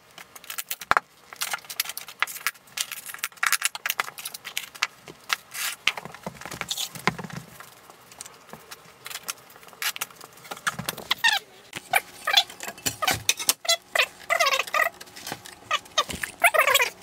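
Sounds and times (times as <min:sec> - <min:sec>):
high squeaky sped-up voices: 0:11.1 - 0:15.0, 0:15.7 - 0:17.0.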